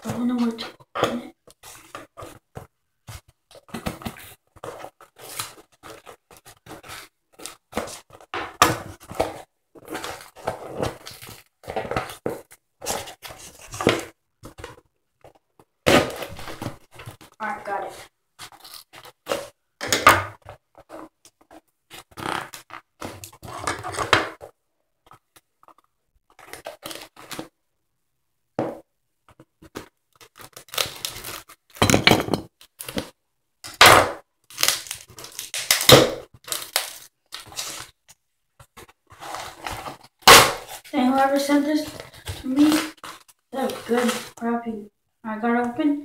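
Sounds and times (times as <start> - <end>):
cardboard parcel tearing: 30.1 - 31.8, 34.4 - 38.0, 38.8 - 44.4.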